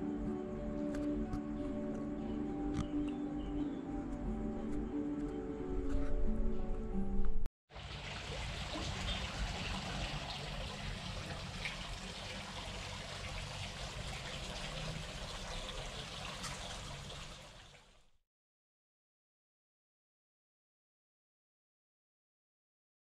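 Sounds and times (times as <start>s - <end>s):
fountain water splashing: 7.7s - 18.0s.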